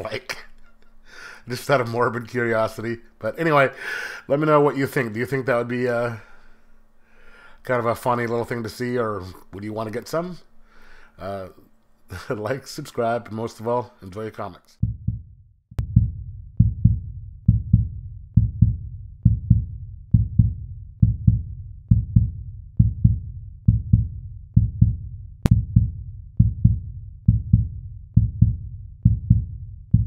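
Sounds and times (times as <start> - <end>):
heartbeat-like double thumps: 14.8 - 30.0.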